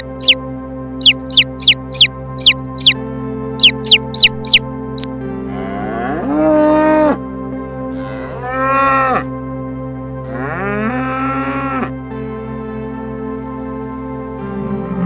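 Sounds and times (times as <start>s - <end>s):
soft background music: 0.0s - 15.0s
calf mooing: 5.5s - 7.2s, 8.0s - 9.3s, 10.3s - 11.9s.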